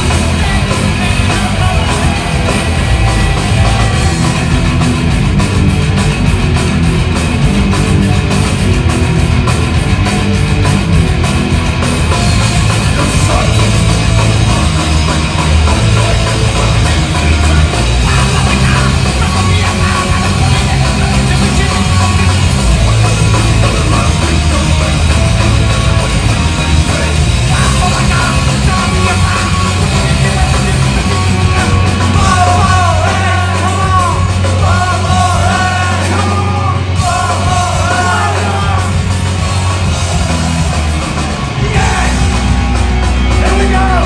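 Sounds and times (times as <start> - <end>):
bass guitar: 0.0 - 44.0
distorted electric guitars: 0.0 - 44.0
drums: 0.0 - 44.0.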